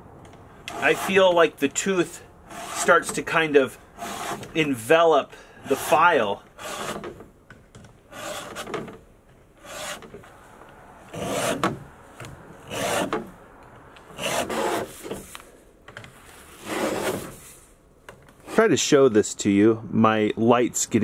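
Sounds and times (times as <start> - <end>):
file rasping on chainsaw teeth: 0.7 - 1.2.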